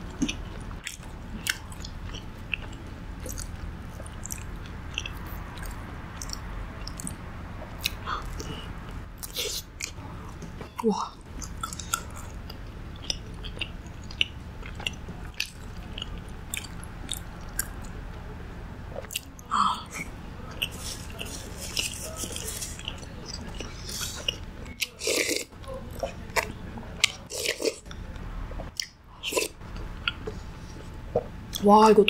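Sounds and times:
low hum: 0.0s - 24.8s
chewing and wet mouth clicks: 0.2s - 7.2s, 11.4s - 18.0s.

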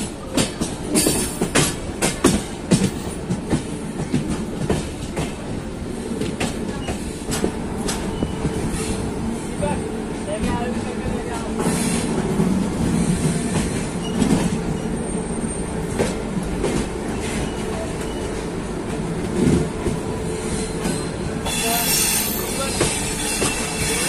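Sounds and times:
train rumbling and rattling: 0.0s - 24.0s
train wheel knocks: 0.2s - 5.6s
high wheel squeal: 20.5s - 24.0s.

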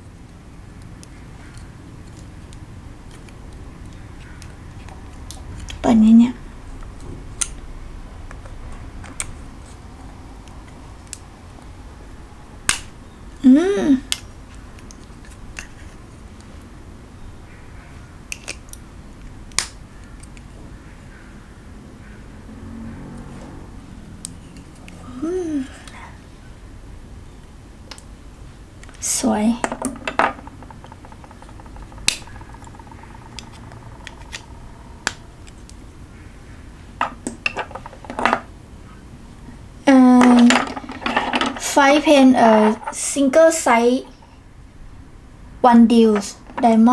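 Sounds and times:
metal pens clicking and tapping: 29.6s - 35.6s.

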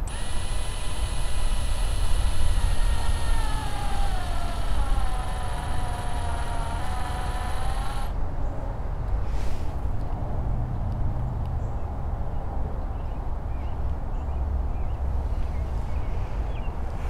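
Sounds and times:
cordless drill motor whine: 0.0s - 8.2s.

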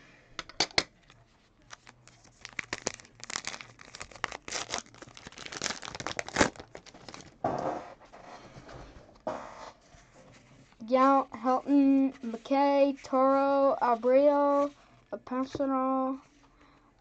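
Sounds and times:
card pack wrapper crinkling and tearing: 1.6s - 7.4s.

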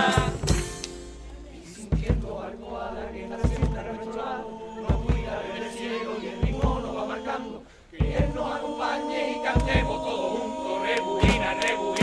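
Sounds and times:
bass drum strikes: 0.0s - 2.6s, 3.4s - 4.0s, 4.9s - 5.4s, 6.4s - 7.0s, 8.0s - 8.6s, 9.6s - 10.1s, 11.2s - 12.0s
group singing in chorus: 0.0s - 12.0s.

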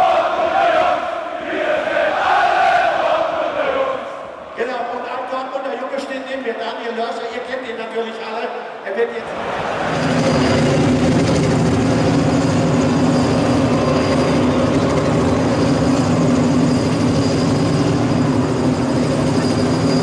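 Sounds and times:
stadium crowd chanting and roaring: 0.0s - 5.5s, 8.5s - 19.8s.

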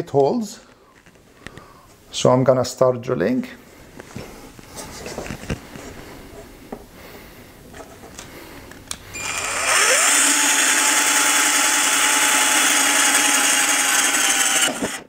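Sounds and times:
cordless drill whine: 9.1s - 15.0s
drill grinding through sheet metal: 9.2s - 15.0s.

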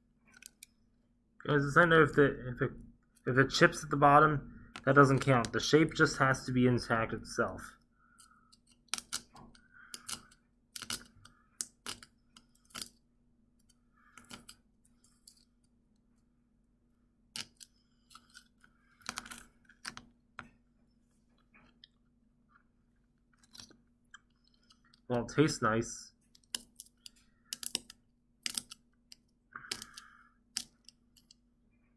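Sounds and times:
small clicks and cracks: 0.2s - 0.8s, 8.2s - 13.0s, 13.6s - 16.0s, 17.3s - 20.5s, 23.2s - 25.2s, 26.2s - 31.4s.

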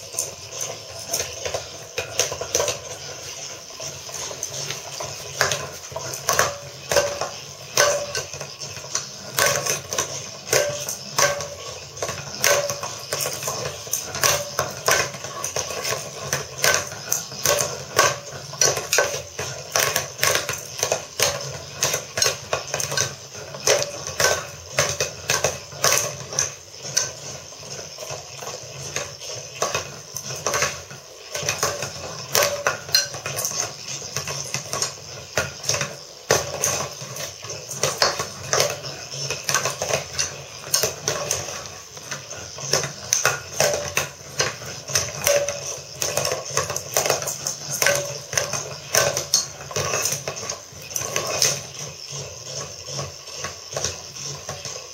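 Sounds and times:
toy rattling against ceramic pot: 0.0s - 54.9s.

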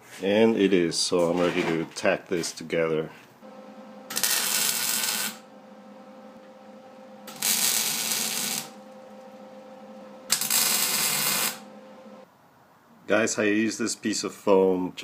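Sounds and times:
steady welder hum: 3.4s - 12.2s
welder crackling: 3.4s - 12.2s.

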